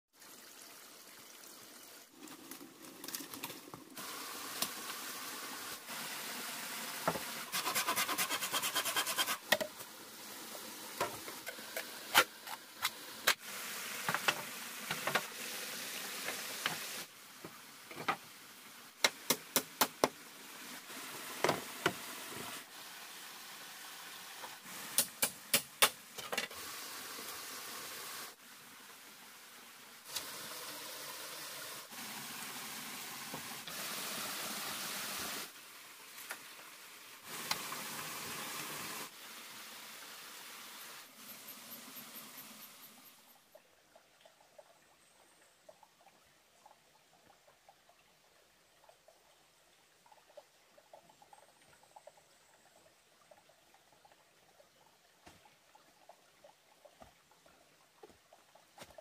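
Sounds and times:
running water hiss: 0.2 - 54.5.

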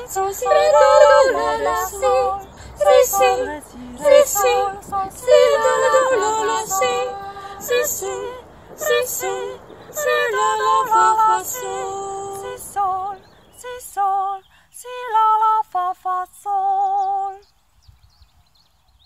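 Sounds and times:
women singing a cappella canon: 0.0 - 17.5.

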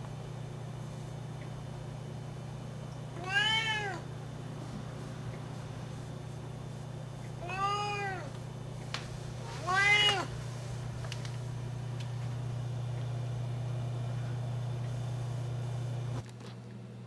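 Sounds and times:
cat meowing loudly: 3.2 - 4.0, 7.4 - 8.3, 9.6 - 10.3.

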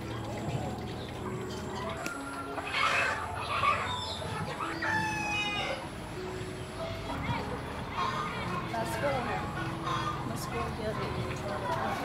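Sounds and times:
chickens clucking: 0.0 - 12.0
rooster crowing: 4.7 - 5.8.

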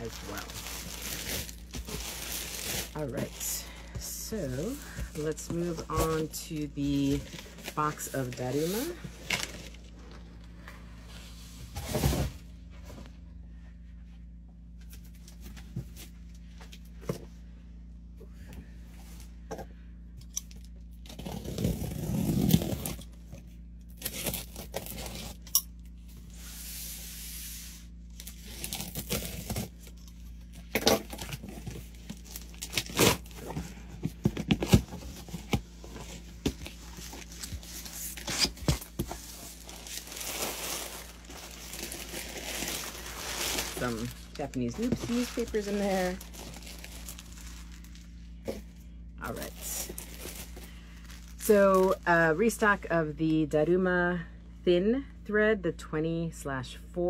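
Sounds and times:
packing paper rustling: 0.0 - 3.8, 4.5 - 10.2, 28.1 - 48.3, 49.2 - 52.0
tape tearing: 28.2 - 30.0, 30.7 - 33.6.

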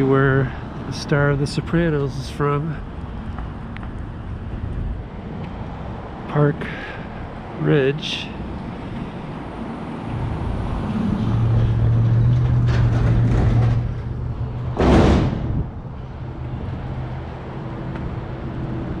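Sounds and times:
vehicle engine passing: 8.6 - 19.0.

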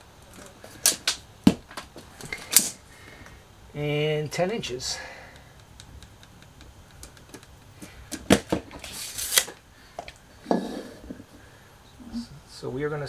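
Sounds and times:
tape measure ticks: 5.3 - 7.7
tape measure clicks: 8.8 - 9.6.

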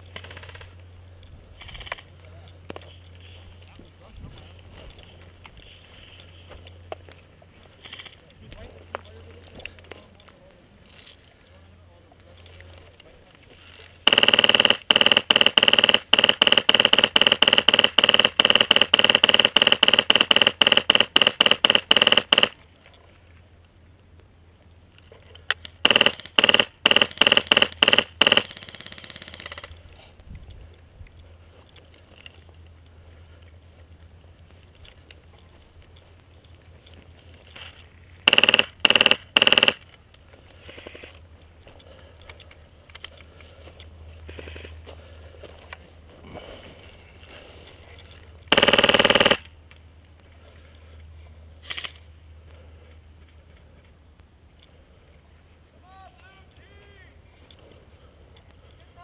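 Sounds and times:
airsoft rifle shots: 14.0 - 22.6, 25.5 - 29.7, 38.3 - 39.9, 48.5 - 49.5.

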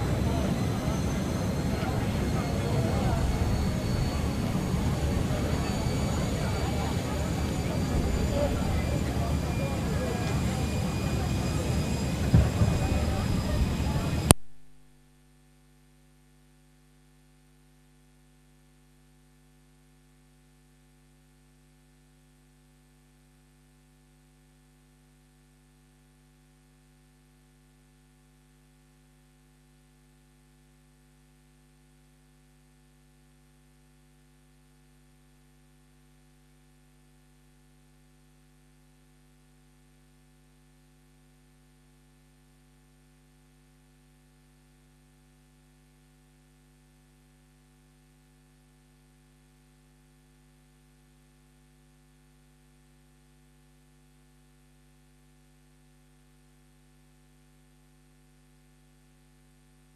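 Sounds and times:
faint steady hum: 0.0 - 59.9.

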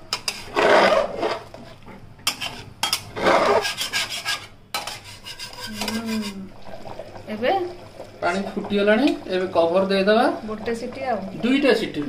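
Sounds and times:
metal spoon scraping pot: 0.1 - 1.6, 2.2 - 6.5.

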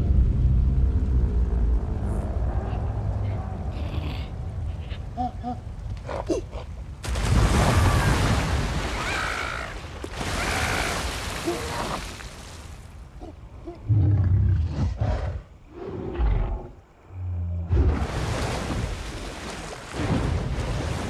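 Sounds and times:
water splashing: 7.0 - 13.4, 17.8 - 21.0.

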